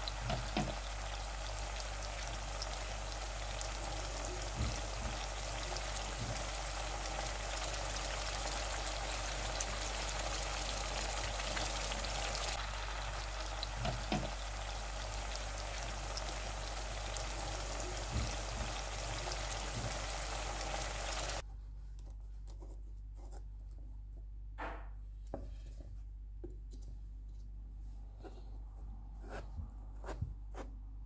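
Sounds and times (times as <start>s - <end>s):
food sizzling in oil: 0.0s - 21.4s
spatula knocking on pan: 0.2s - 0.9s, 13.7s - 14.4s.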